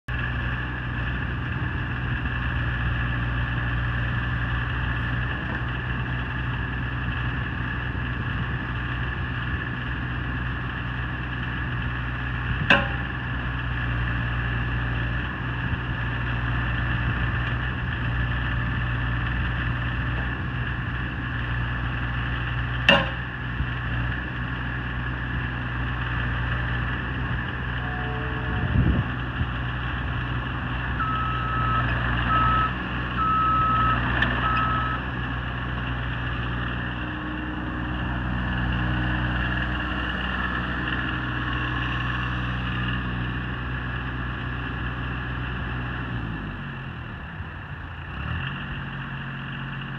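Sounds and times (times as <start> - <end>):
excavator diesel engine running: 0.1 - 49.9
sharp knocks: 12.7 - 13.1, 22.9 - 23.3.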